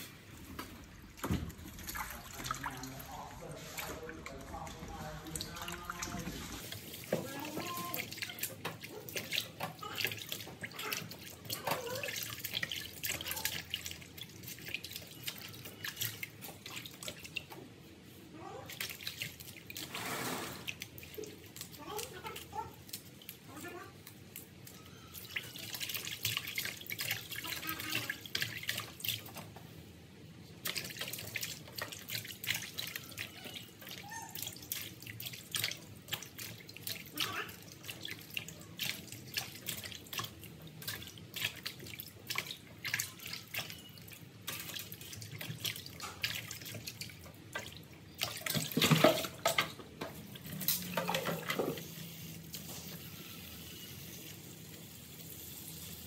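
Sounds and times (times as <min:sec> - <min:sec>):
water splashing and dripping: 0:00.0 - 0:56.0
tap running into basin: 0:30.6 - 0:54.0.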